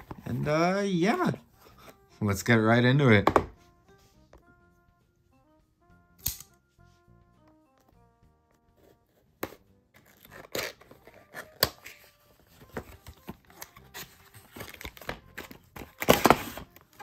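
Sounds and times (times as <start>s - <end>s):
cardboard and plastic crinkling: 10.0s - 17.0s.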